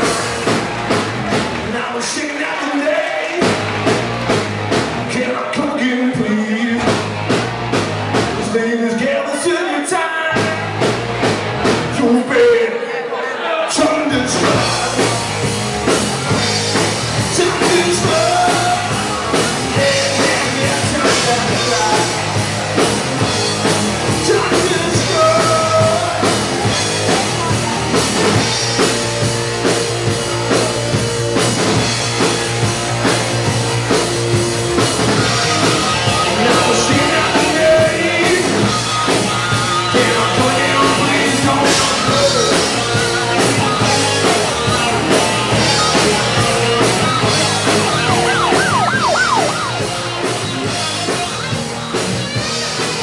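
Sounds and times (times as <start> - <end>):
drum kit: 0.0 - 8.6, 10.3 - 12.3, 14.2 - 53.0
electric guitar: 14.3 - 53.0
person singing: 17.2 - 22.4, 24.2 - 26.5, 35.4 - 39.0, 39.6 - 49.8.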